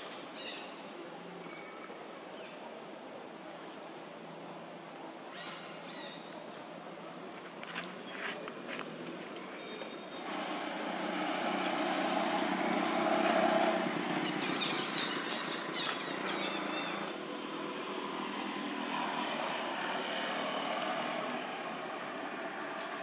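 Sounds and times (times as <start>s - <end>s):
motor drone: 10.2s - 14.1s.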